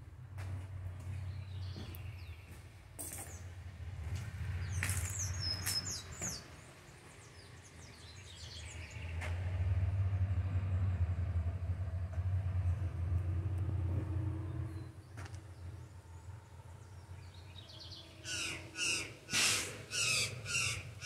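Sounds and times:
small birds chirping: 0.9 - 3.6, 4.2 - 9.4, 14.7 - 21.0.

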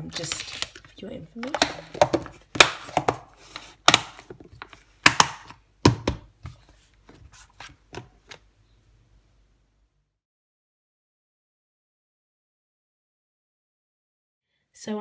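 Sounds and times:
plastic tubs knocking and clicking: 0.0 - 6.6.

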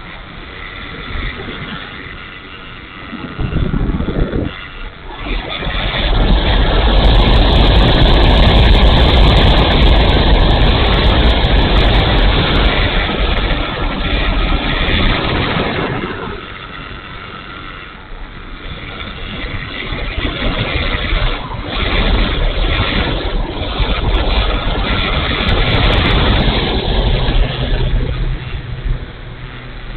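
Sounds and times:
airflow rushing over camera: 0.0 - 29.9
electric motor and propeller: 0.0 - 29.9.

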